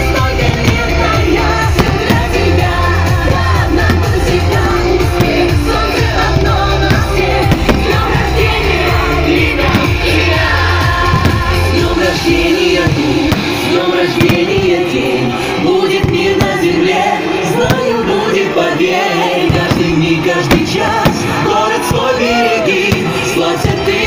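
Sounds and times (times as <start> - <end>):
steady bass beat: 0.0 - 15.2
pop music with singing: 0.0 - 24.0.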